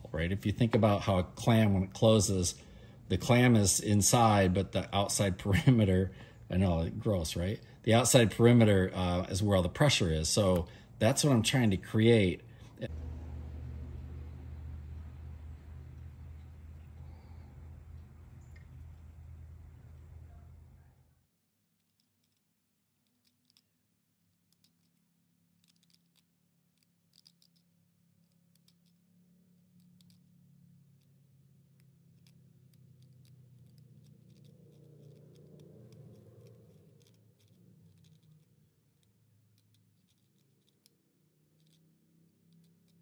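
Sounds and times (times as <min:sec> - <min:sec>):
scorp scraping wood: 0:32.1 - 0:43.0.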